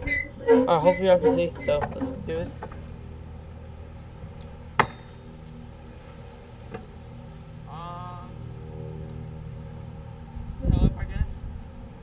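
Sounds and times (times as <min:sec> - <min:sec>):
high squeak: 0:00.0 - 0:02.4
steady low rumble: 0:00.0 - 0:12.0.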